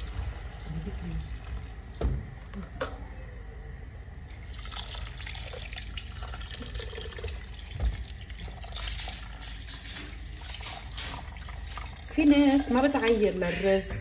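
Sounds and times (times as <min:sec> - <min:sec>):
water pouring into pot: 0:04.3 - 0:13.3.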